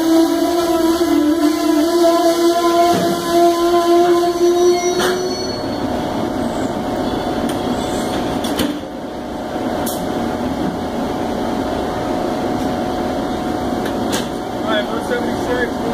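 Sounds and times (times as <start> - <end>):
train wheels rumbling on rails: 0.0 - 15.9
held pitched tone: 0.2 - 8.3.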